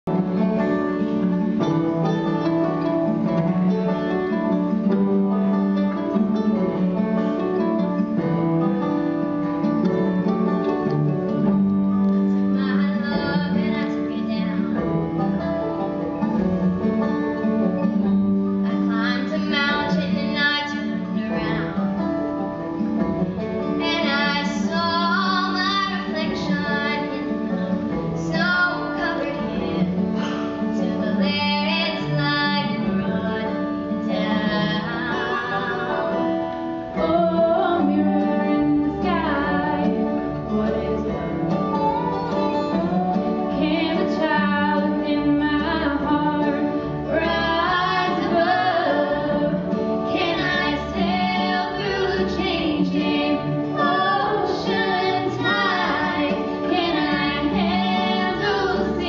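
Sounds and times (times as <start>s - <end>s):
acoustic guitar ballad: 0.1s - 59.0s
woman singing: 12.5s - 14.8s, 18.7s - 21.8s, 23.8s - 30.0s, 30.7s - 41.4s, 43.0s - 59.0s.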